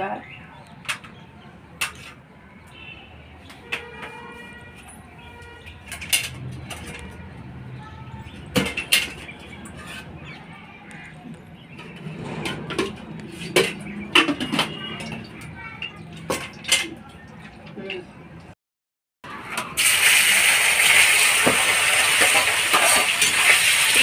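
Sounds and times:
oil poured into hot pan hissing: 0:19.8 - 0:24.0.

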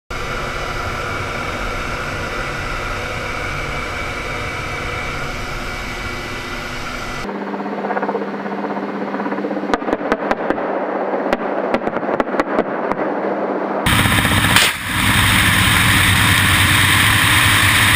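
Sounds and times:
helicopter engines and rotors din: 0:00.1 - 0:17.9
thin helicopter drone: 0:00.1 - 0:17.9
rapid gunshots: 0:13.9 - 0:15.2.

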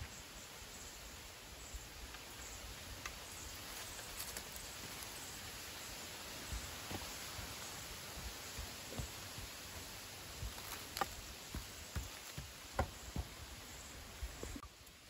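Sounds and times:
background hiss: 0:00.0 - 0:15.0
light clicks of bamboo poles: 0:02.0 - 0:05.2.

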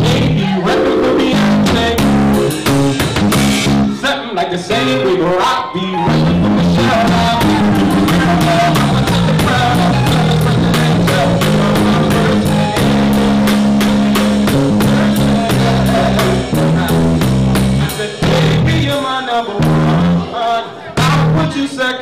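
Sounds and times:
live band music: 0:00.0 - 0:04.1, 0:04.7 - 0:20.3
drum kit beat with cymbals: 0:01.7 - 0:03.8, 0:07.0 - 0:18.7
sustained low chords: 0:06.1 - 0:18.8.

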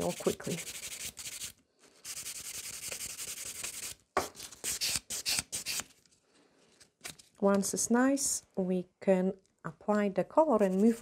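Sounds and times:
nail file rubbing on nail: 0:00.0 - 0:04.0.

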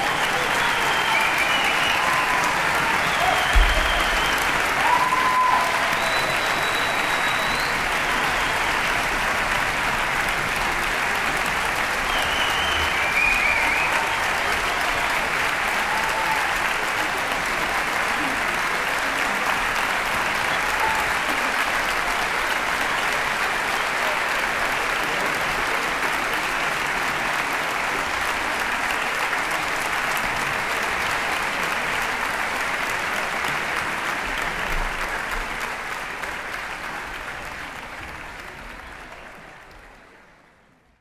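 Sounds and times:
audience applauding: 0:00.0 - 0:40.8.

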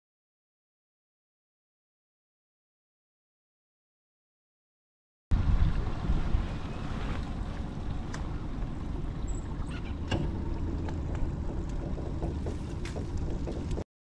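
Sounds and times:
wind rumbling on microphone: 0:05.3 - 0:13.8.

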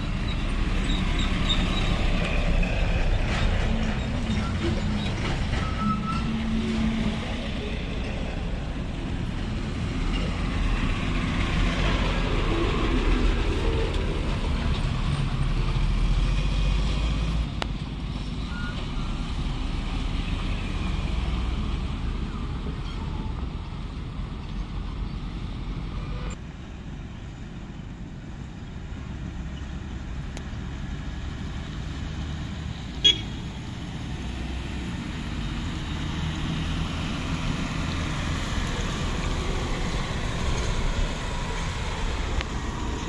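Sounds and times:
trucks rumbling past: 0:00.0 - 0:43.0.

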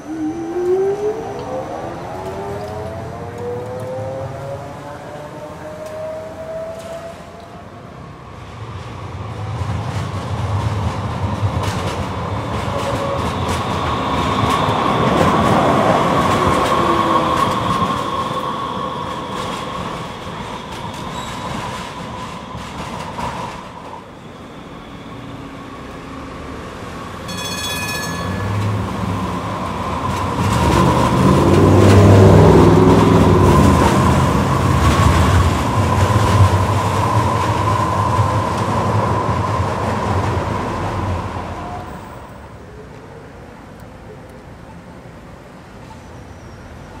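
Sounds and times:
light rail vehicle passing: 0:00.0 - 0:47.0
wheel-on-rail noise: 0:08.6 - 0:42.5
brief high-pitched tone: 0:27.3 - 0:28.8.

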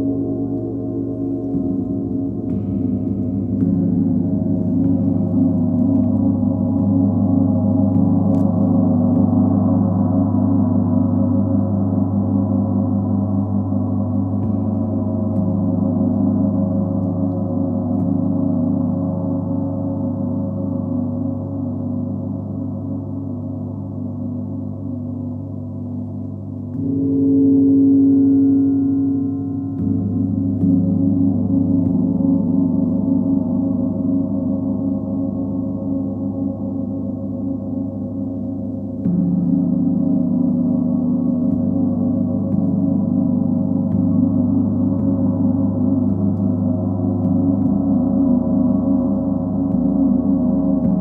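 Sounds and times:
deep gongs played with mallets: 0:00.0 - 0:51.0.

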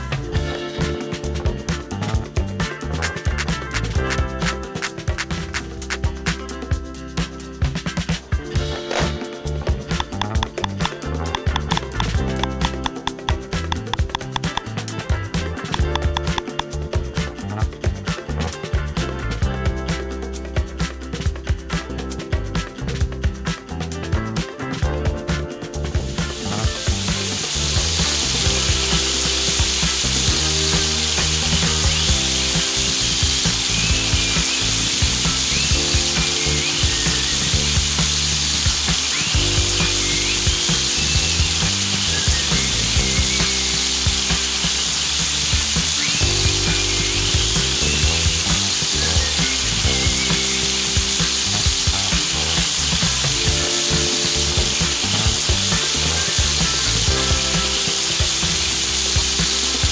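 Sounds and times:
background music sustained notes: 0:00.0 - 0:59.9
food frying in oil: 0:09.9 - 0:14.8, 0:15.7 - 0:16.7, 0:26.0 - 0:59.9.

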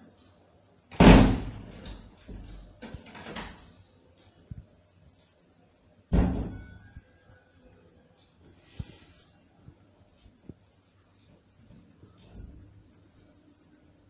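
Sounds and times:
heavy bangs on wooden door: 0:01.0 - 0:02.5, 0:06.1 - 0:06.6.

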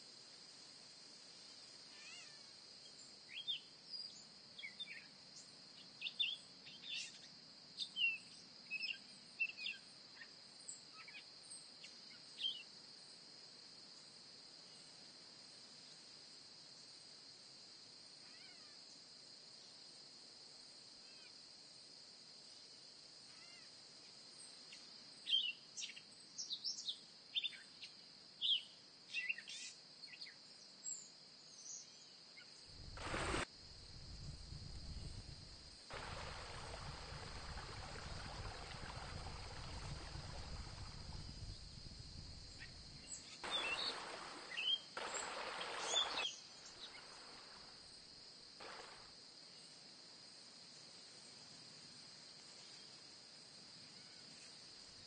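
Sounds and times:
high insect drone: 0:31.5 - 0:55.0
bird chirps: 0:42.6 - 0:44.9.

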